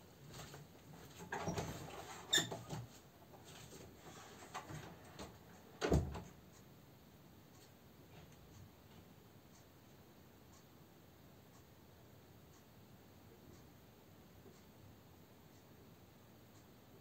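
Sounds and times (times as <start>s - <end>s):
door squeaking: 1.3s - 2.8s.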